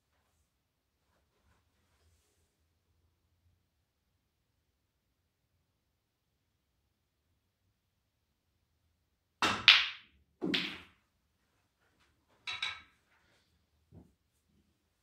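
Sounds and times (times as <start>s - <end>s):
snooker balls clicking: 9.4s - 10.9s, 12.5s - 12.9s.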